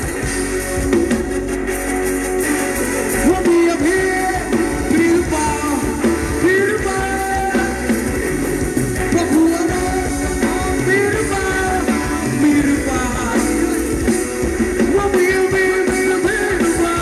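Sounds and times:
guitar: 0:00.0 - 0:17.0
live band dance music: 0:00.0 - 0:17.0
person singing: 0:03.1 - 0:08.1, 0:09.0 - 0:17.0.

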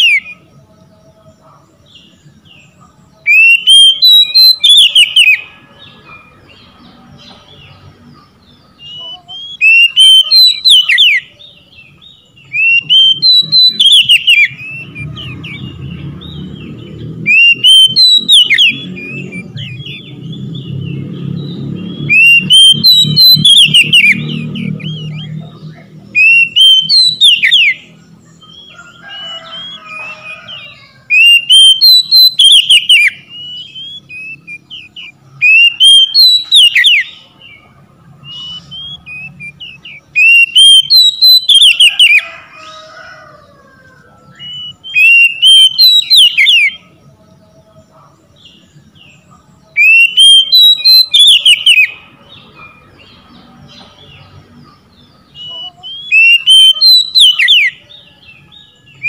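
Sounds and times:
bird singing whistled phrases: 0:03.2 - 0:05.5, 0:08.8 - 0:15.6, 0:17.3 - 0:20.2, 0:22.0 - 0:28.6, 0:31.1 - 0:37.2, 0:38.2 - 0:42.3, 0:44.3 - 0:46.8, 0:49.7 - 0:52.0, 0:55.3 - 0:57.8.

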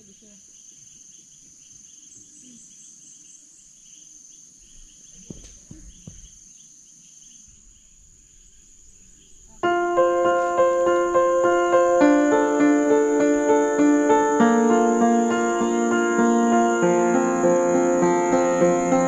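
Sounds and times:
insect chirps: 0:00.0 - 0:19.0
insects trilling: 0:00.0 - 0:19.0
soft knocks: 0:05.2 - 0:06.4
piano music: 0:09.4 - 0:19.0.

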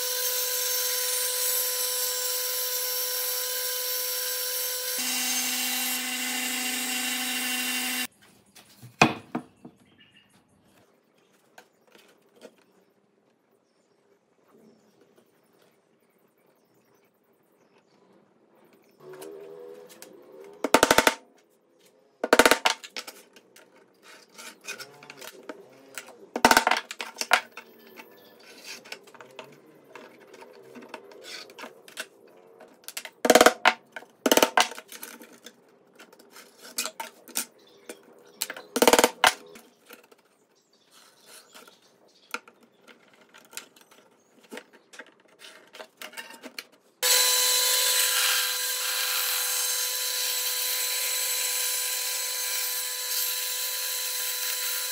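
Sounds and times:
bandsaw cutting wood: 0:00.0 - 0:08.1, 0:47.0 - 0:54.9.

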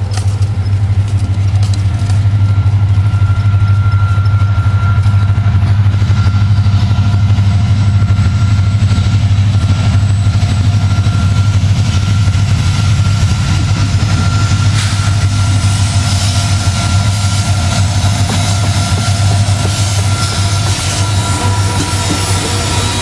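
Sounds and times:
diesel locomotive engine rumble: 0:00.0 - 0:23.0
faint high whine: 0:00.5 - 0:23.0.

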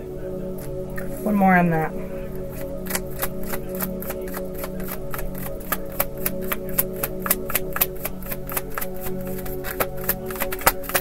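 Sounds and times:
background music of held tones: 0:00.0 - 0:11.0
cards being shuffled: 0:02.6 - 0:11.0.

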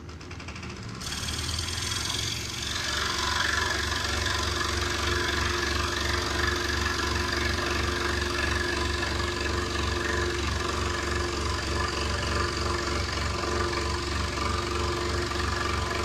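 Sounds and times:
scroll saw cutting wood: 0:00.6 - 0:16.0.

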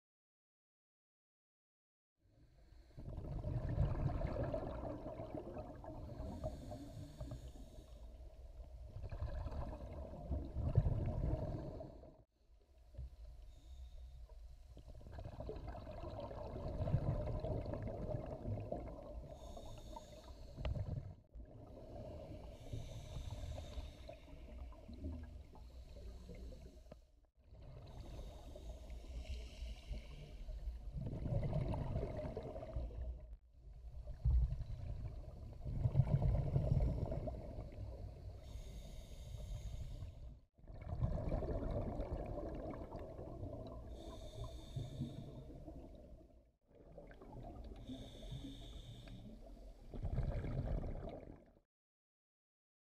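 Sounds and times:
exhaled bubbles gurgling: 0:03.0 - 0:07.8, 0:08.8 - 0:12.2, 0:15.0 - 0:26.7, 0:30.1 - 0:33.2, 0:34.0 - 0:38.3, 0:40.6 - 0:51.6
regulator inhalation hiss: 0:47.9 - 0:49.3.

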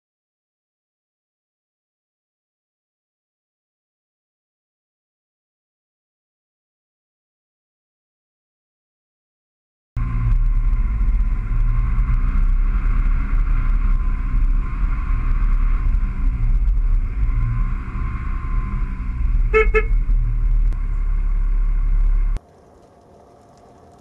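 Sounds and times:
motor vehicle humming: 0:10.0 - 0:24.0
horn toots: 0:19.4 - 0:20.2.

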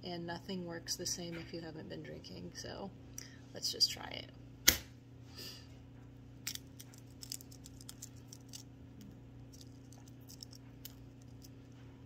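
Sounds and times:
eggshell crackling: 0:06.4 - 0:11.8.

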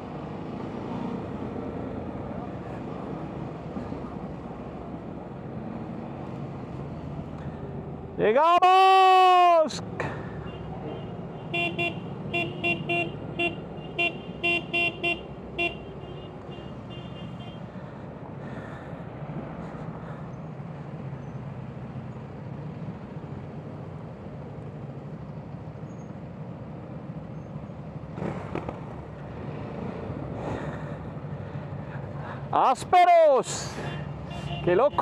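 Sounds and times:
motorcycle horn blasts: 0:33.9 - 0:35.0.

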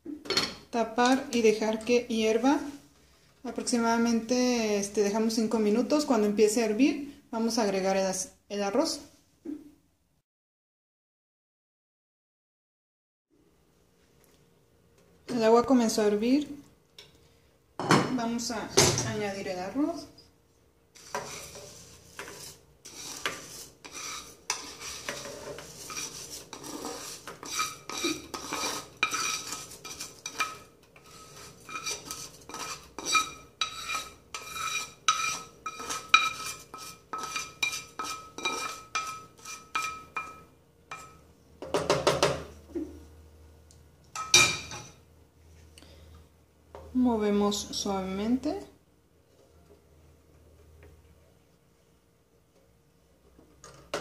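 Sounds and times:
utensil scraping a frying pan: 0:21.0 - 0:41.2.

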